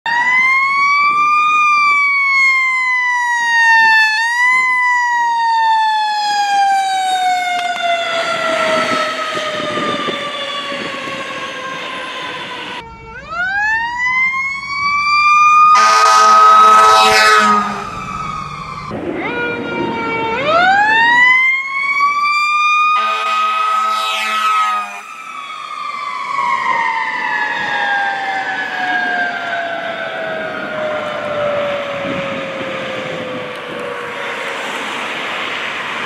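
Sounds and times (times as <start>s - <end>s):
fire truck siren: 0.0s - 36.0s
loud air horn blast: 15.7s - 18.0s, 22.9s - 25.1s.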